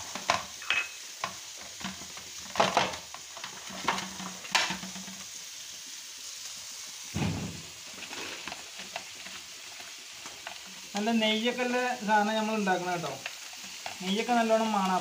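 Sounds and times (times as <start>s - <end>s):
heavy thud: 7.2s - 7.8s.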